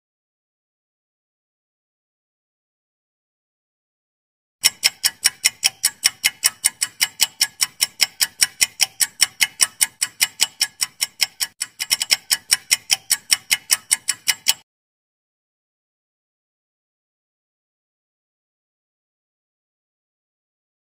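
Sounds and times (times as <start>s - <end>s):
rapid clock-like ticks: 4.6s - 14.6s.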